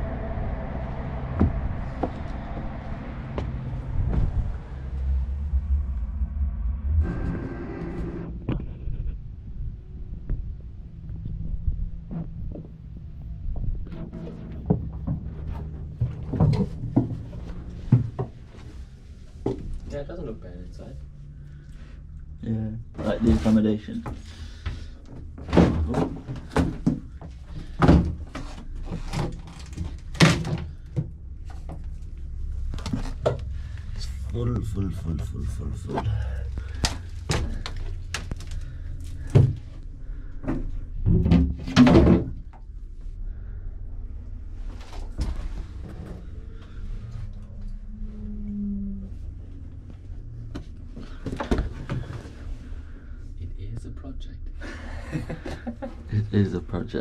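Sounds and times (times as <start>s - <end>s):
short low hum: 0.0s - 16.3s.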